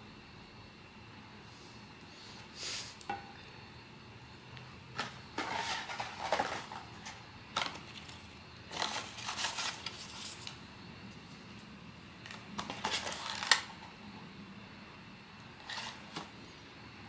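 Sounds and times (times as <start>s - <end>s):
cardboard and wrapping rustling: 5.0s - 10.6s, 12.3s - 13.9s, 15.6s - 16.3s.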